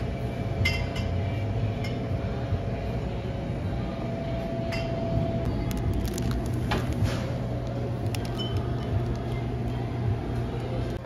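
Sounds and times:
light crinkles: 0:05.6 - 0:09.8.

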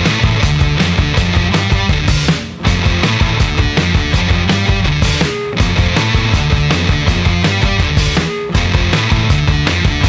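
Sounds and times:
rock music with drum beat: 0:00.0 - 0:10.0.

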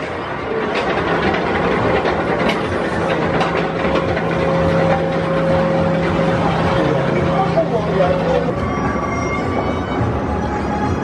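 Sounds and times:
high mechanical whine: 0:00.0 - 0:11.0
chain lift hum with clicks: 0:00.6 - 0:08.4.

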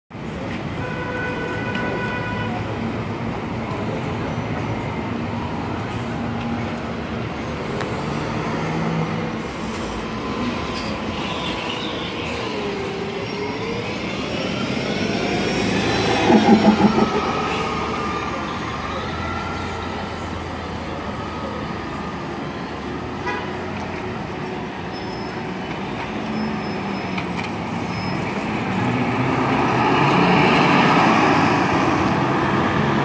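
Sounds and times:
buses passing and pulling away: 0:00.1 - 0:33.0
street traffic noise: 0:00.1 - 0:33.0
bus transmission whine: 0:09.1 - 0:22.8.

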